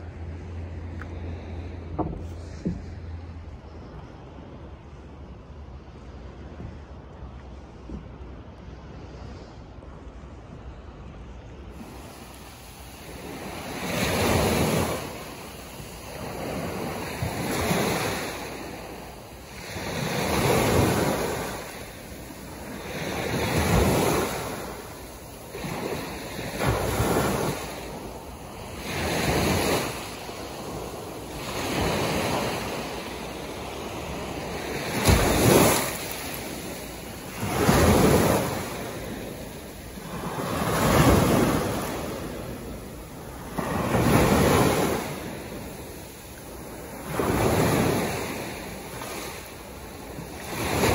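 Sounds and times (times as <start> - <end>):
small waves breaking on beach: 11.7 - 50.9.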